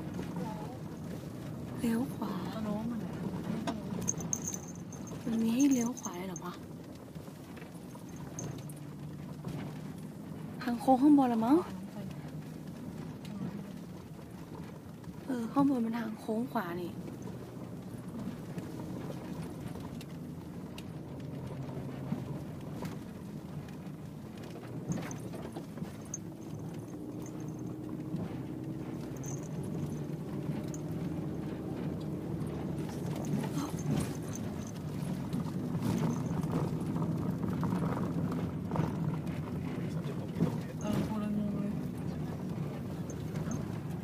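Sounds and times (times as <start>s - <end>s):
car engine and road drone: 0.0s - 44.0s
knocks and rattles: 3.2s - 6.5s, 21.2s - 41.2s.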